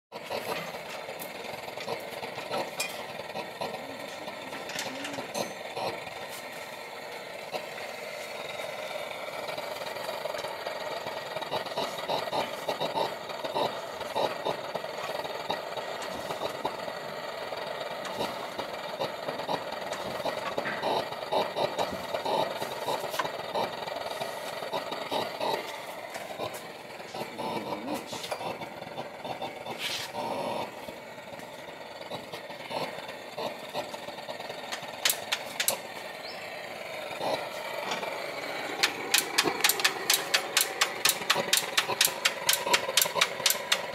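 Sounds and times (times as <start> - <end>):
single-cylinder engine knocking: 9.4 - 24.0, 32.1 - 35.9, 37.9 - 43.9.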